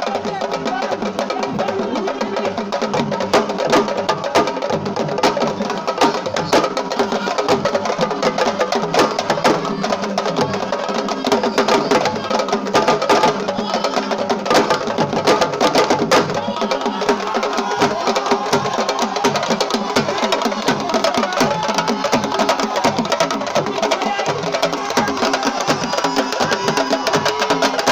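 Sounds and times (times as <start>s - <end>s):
fast hand drumming: 0.0s - 27.9s
voices singing: 0.0s - 27.9s.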